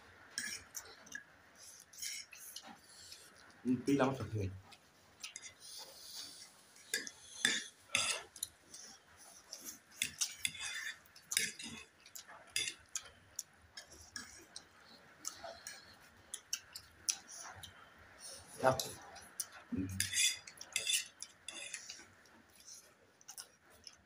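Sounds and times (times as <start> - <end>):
forks clinking on plates: 20.0 - 22.0.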